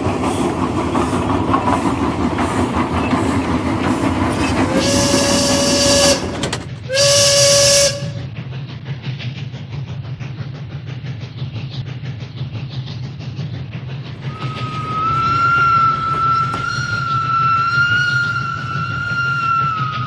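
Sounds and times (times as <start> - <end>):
wheels and gears clicking: 0.0 - 6.9.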